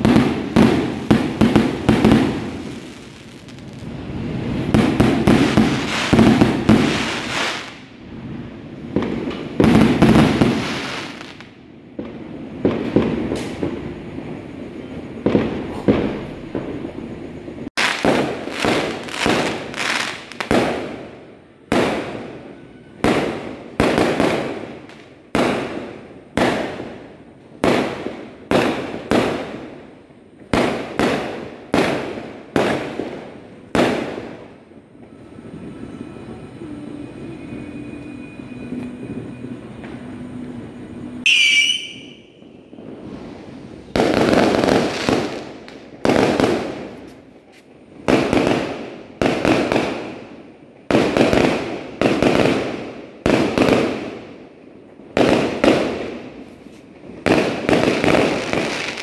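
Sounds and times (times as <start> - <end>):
fireworks bursting with crackling: 0.0 - 59.0
wavering whistle: 35.3 - 39.8, 41.2 - 42.5.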